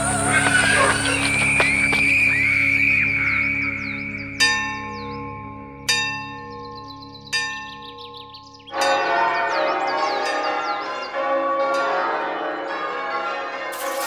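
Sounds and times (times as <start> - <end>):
peal of church bells: 3.1 - 14.0.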